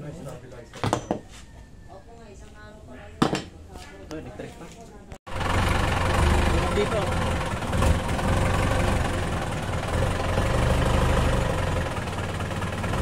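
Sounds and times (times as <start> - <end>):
engine idling: 5.3 - 13.0.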